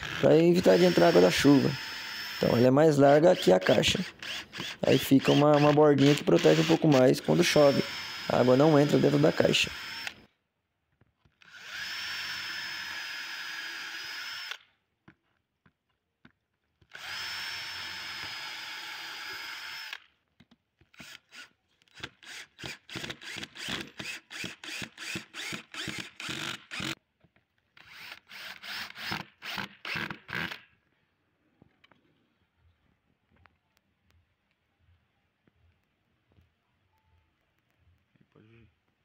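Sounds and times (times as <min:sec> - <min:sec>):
cordless drill boring wood: 0:00.0 - 0:10.3, 0:11.4 - 0:14.7, 0:16.8 - 0:20.1, 0:20.9 - 0:27.0, 0:27.8 - 0:30.6
drill driving screws in bursts: 0:00.0 - 0:10.3, 0:11.4 - 0:14.7, 0:16.9 - 0:20.1, 0:20.9 - 0:27.0, 0:27.8 - 0:30.6.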